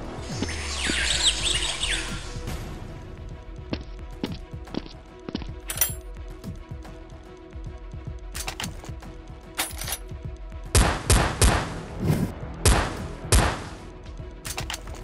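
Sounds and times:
background music: 0.0s - 15.0s
gunshot sound effects: 12.7s - 13.8s.

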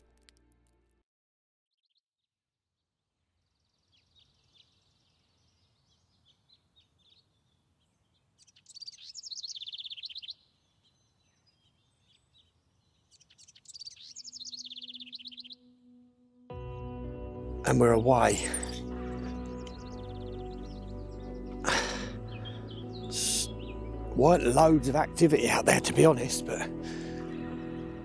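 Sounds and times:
songbird singing close by: 3.4s - 15.6s, 18.2s - 26.5s
fainter bird calls: 3.5s - 15.7s, 18.5s - 24.0s.

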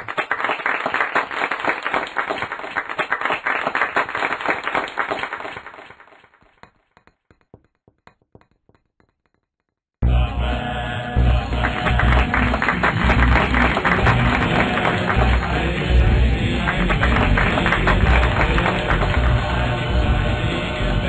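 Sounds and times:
audience applause: 0.0s - 6.4s, 11.5s - 20.7s.

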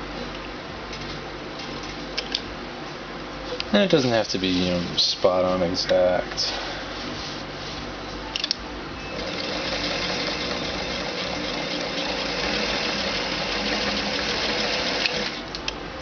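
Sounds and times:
sewing machine humming: 9.1s - 15.5s
sewing machine clicks: 11.1s - 15.4s.

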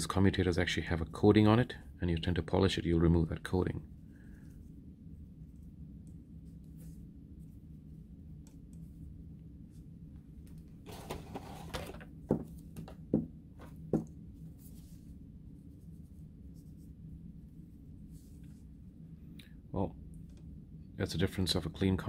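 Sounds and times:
steady low hum: 0.0s - 22.0s
rustling: 14.4s - 18.8s.

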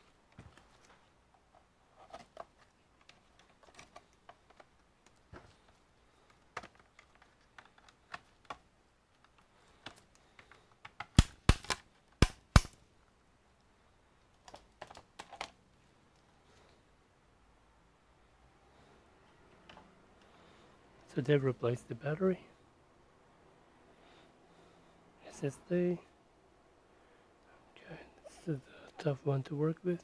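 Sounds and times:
sharp loud clicks: 11.0s - 12.8s.

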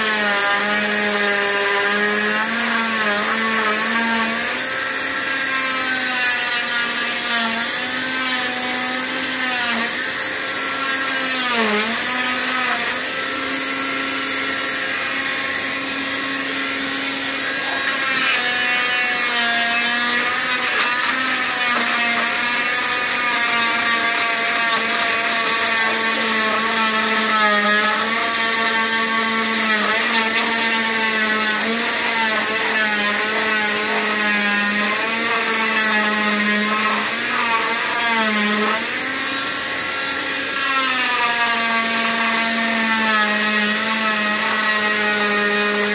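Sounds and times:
cast saw whining: 0.0s - 45.9s
vacuum running: 2.4s - 29.5s.

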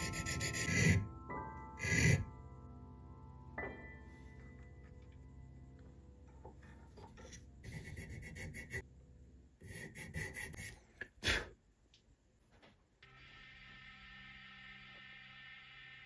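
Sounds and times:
hand file rasping metal: 0.0s - 1.1s, 1.8s - 2.3s, 9.6s - 10.8s.

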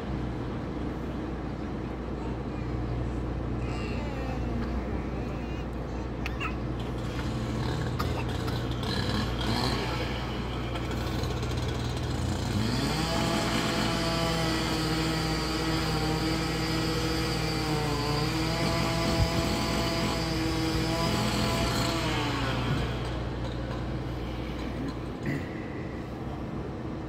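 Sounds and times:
demolition machine engine revving: 6.7s - 25.4s.

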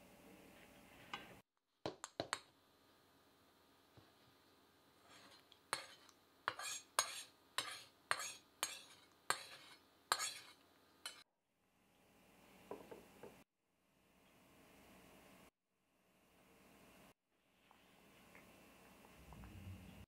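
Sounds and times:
utensil scraping a cooking pan: 4.9s - 11.2s.

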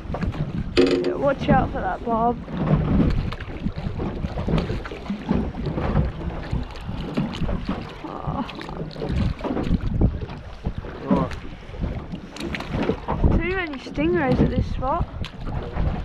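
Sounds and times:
water slapping boat hull: 0.0s - 16.0s
wind buffeting microphone: 0.0s - 16.0s
knocks: 0.8s - 1.2s.

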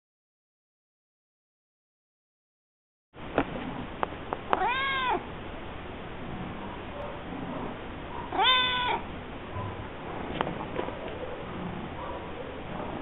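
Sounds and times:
cat meowing: 4.5s - 5.3s, 8.3s - 9.1s.

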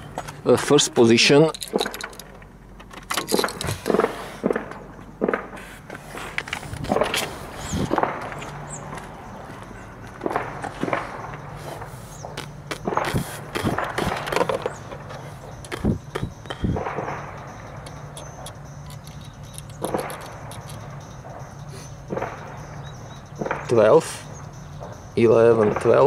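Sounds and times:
knocks scrapes and rustles: 3.0s - 4.8s, 5.4s - 8.6s, 12.8s - 16.2s.

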